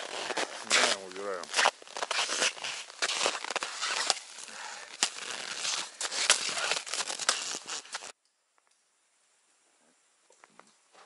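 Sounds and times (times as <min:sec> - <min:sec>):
ice cracking: 0:00.0 - 0:08.2
snow and ice crunching: 0:00.0 - 0:08.2.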